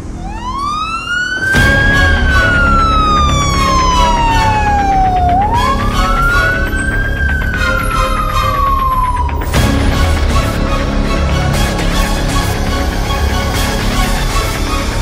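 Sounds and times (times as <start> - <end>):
background music with steady beat: 0.0 - 15.0
emergency siren wailing: 0.0 - 15.0.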